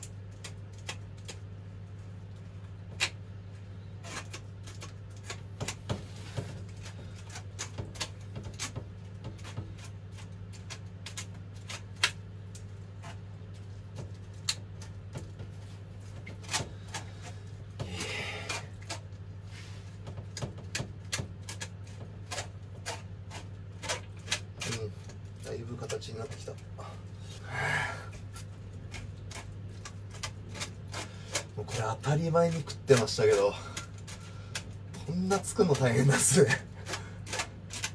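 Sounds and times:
low hum: 26.2s - 31.6s
scraping rasp: 28.1s - 37.9s.

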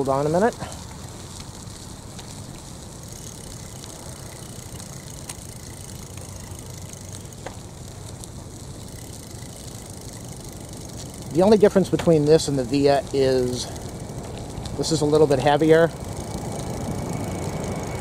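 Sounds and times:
bike tyres rumbling on concrete: 0.0s - 18.0s
light clicks and rattles: 8.9s - 15.9s.

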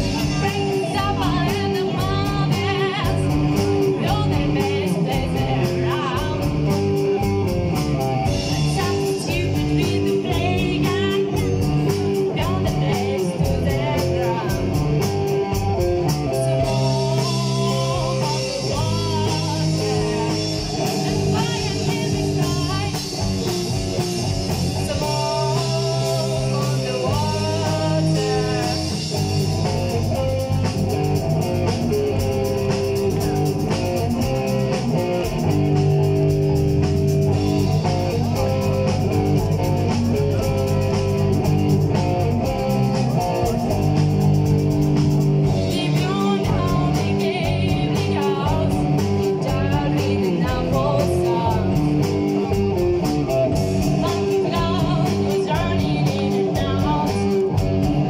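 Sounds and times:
woman singing: 0.0s - 6.8s, 8.5s - 15.1s, 16.2s - 23.5s, 24.7s - 29.8s, 45.5s - 52.1s, 53.8s - 57.6s
live rock band playing: 0.0s - 58.0s.

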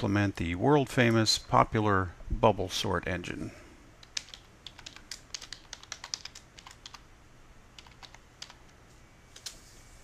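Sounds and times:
keyboard typing: 4.0s - 7.0s, 7.8s - 9.6s.

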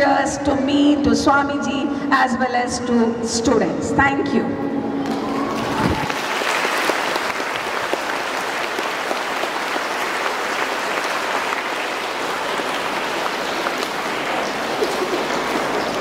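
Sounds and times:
audience applauding: 5.0s - 16.0s.

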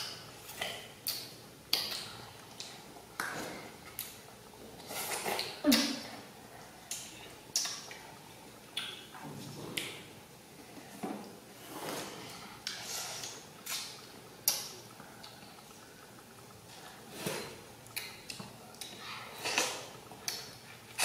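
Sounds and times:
children chewing juicy fruit: 0.0s - 21.0s
slurping: 0.4s - 6.0s.

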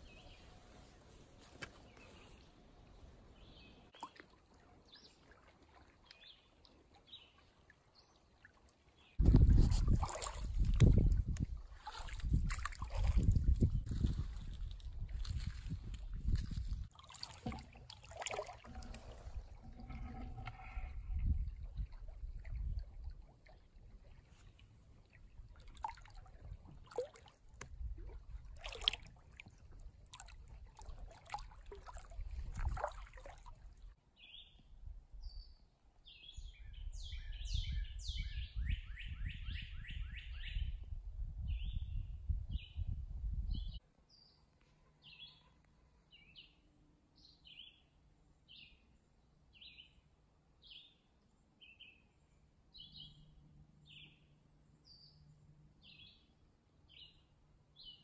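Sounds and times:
feet wading through water: 3.9s - 34.0s.

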